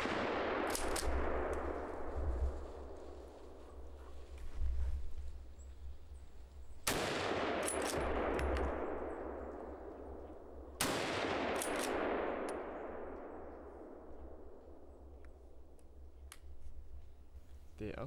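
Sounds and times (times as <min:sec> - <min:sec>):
rifle shots with echo: 0:00.0 - 0:03.9, 0:06.8 - 0:15.7.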